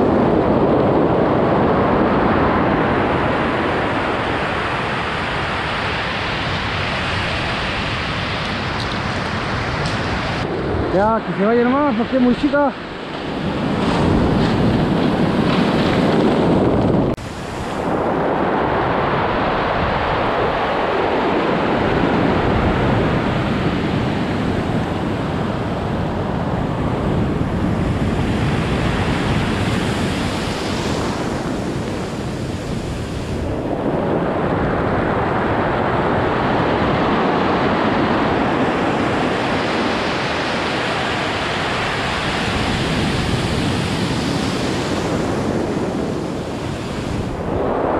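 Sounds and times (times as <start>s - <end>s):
wind on microphone: 0.0s - 47.9s
surf breaking on pebble beach: 11.5s - 23.6s.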